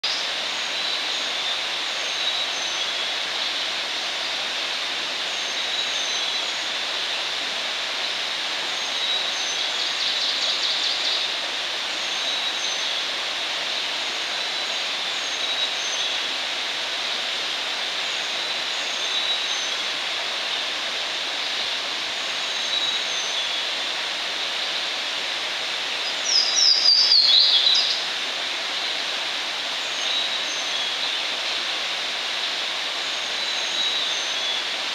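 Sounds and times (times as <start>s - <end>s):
birds singing: 26.0s - 28.1s.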